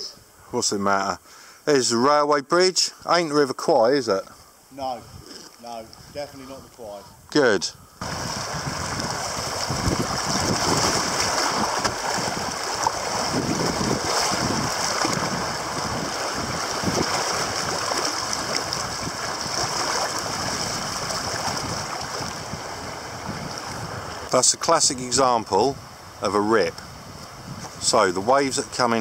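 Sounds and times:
river current rushing and splashing: 8.0 - 26.4.

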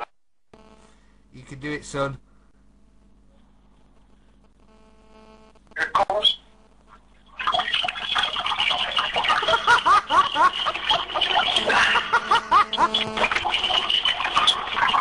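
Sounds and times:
urine splashing into toilet water: 7.4 - 12.2, 13.2 - 15.0.

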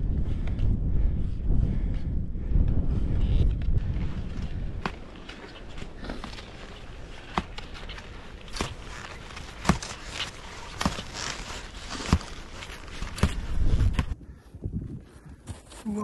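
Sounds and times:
skis crunching through snow: 4.1 - 13.9.

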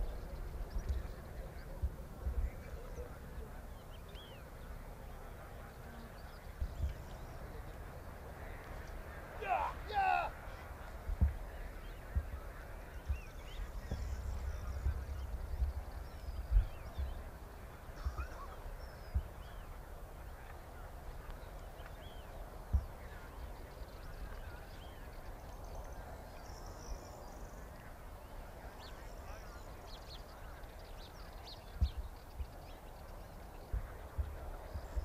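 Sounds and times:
low wind rumble: 0.0 - 35.0.

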